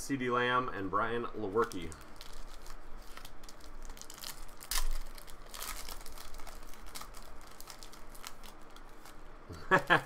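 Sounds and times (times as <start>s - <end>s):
foil wrapper tearing and crinkling: 1.5s - 9.3s.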